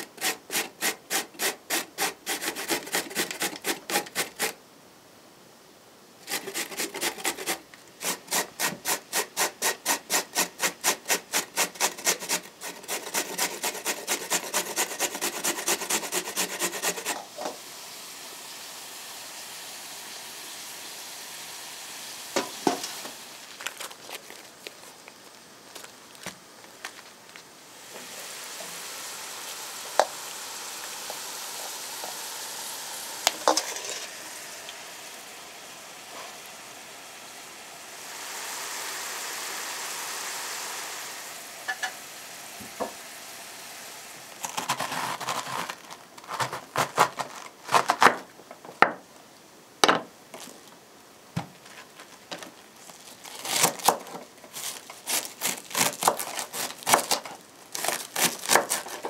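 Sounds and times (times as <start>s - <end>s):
vegetables sizzling in a pan: 6.3s - 25.9s, 26.9s - 46.6s
knife chopping cabbage on wood: 44.4s - 48.2s, 53.4s - 59.0s.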